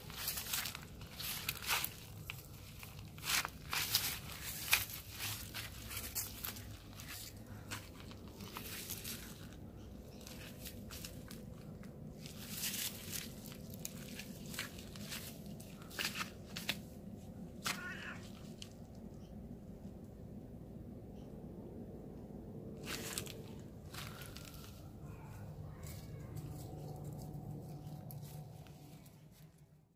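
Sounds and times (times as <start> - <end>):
footsteps on dry grass: 0.0 - 16.9, 22.8 - 29.5.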